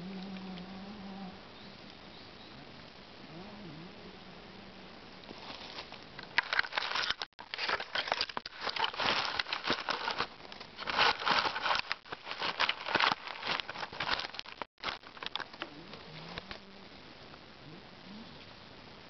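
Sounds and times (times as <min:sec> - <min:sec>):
leaves and twigs rustling: 0:04.0 - 0:16.8.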